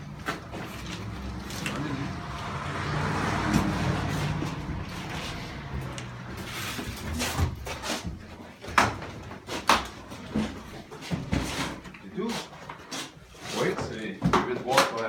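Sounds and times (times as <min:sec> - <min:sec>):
objects knocking and thudding: 0:03.3 - 0:15.0.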